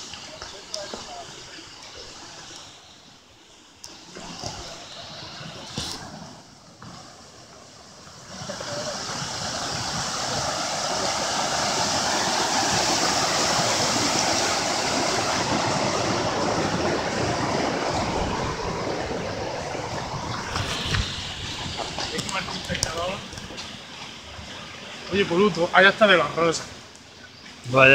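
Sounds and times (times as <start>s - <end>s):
river rushing over rocks: 7.3s - 26.6s.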